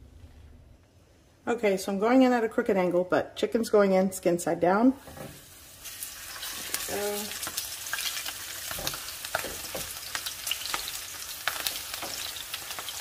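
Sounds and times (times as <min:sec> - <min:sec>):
chicken sizzling in oil: 0:05.2 - 0:13.0.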